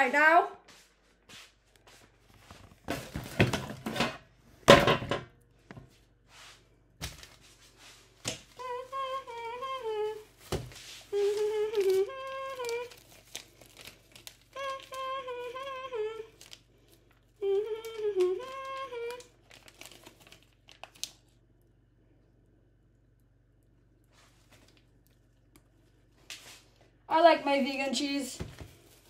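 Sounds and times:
plastic bag crinkling: 0:08.4 - 0:21.4, 0:24.2 - 0:26.0, 0:28.0 - 0:29.0
woman humming: 0:08.5 - 0:10.4, 0:11.0 - 0:13.1, 0:14.5 - 0:16.4, 0:17.4 - 0:19.4.

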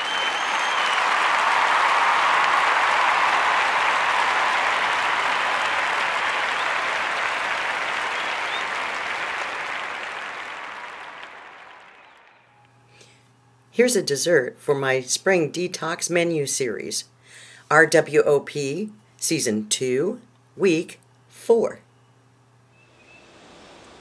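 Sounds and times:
short whistles: 0:00.0 - 0:01.2, 0:08.0 - 0:08.8
crowd applause and cheering: 0:00.0 - 0:12.7.

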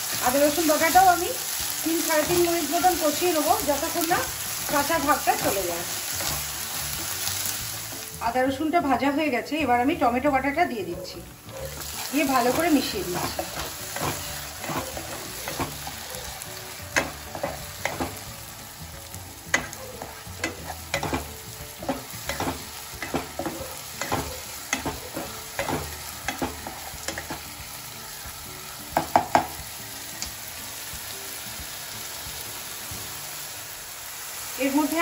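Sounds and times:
food sizzling: 0:00.0 - 0:35.0
spatula scraping and knocking a pan: 0:11.6 - 0:16.2, 0:16.9 - 0:18.3, 0:19.5 - 0:27.5.

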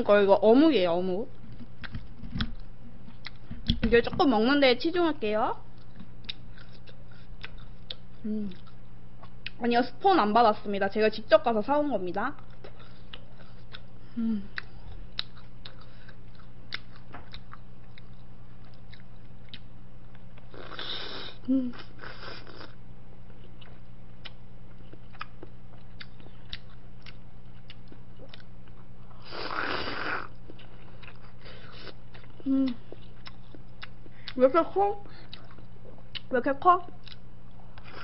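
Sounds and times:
low electrical hum: 0:00.0 - 0:38.0
chewing and mouth clicks: 0:01.8 - 0:03.8, 0:05.7 - 0:09.6, 0:12.3 - 0:21.2, 0:22.0 - 0:34.4, 0:35.1 - 0:36.3, 0:36.9 - 0:38.0.

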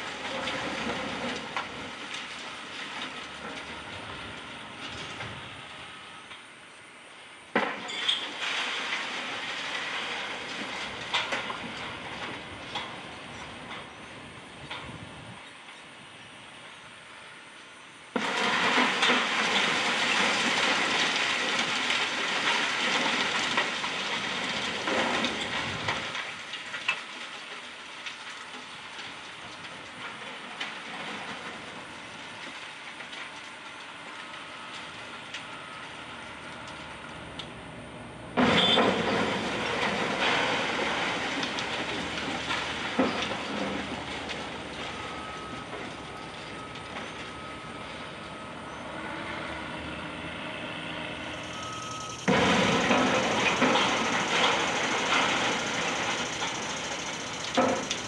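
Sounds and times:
rubble crashing down: 0:00.0 - 0:04.4, 0:07.6 - 0:13.9, 0:18.2 - 0:33.8, 0:38.4 - 0:47.6, 0:52.2 - 0:58.0.

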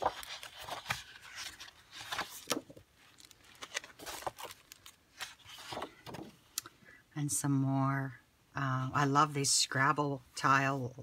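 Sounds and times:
plastic sleeve crinkling: 0:00.0 - 0:06.0
paper rustling: 0:00.0 - 0:06.4.

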